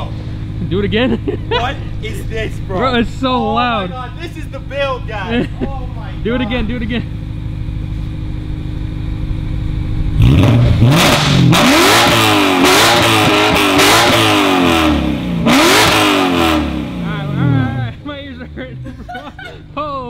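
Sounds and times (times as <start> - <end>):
car engine revving: 0.0 - 20.0.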